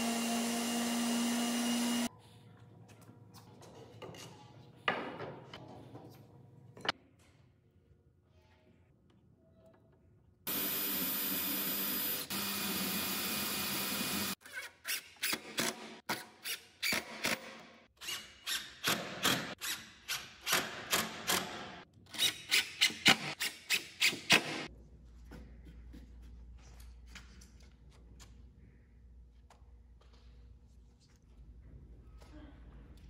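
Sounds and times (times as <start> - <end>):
cordless drill drilling into wood: 0.0 - 2.1, 10.5 - 14.4.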